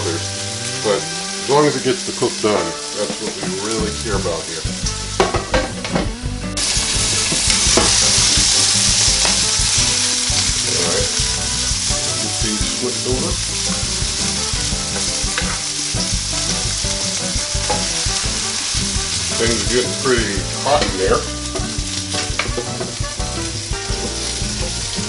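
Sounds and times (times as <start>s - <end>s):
food sizzling in a skillet: 0.0s - 6.0s, 6.6s - 25.0s
spatula scraping and tapping: 15.0s - 15.7s.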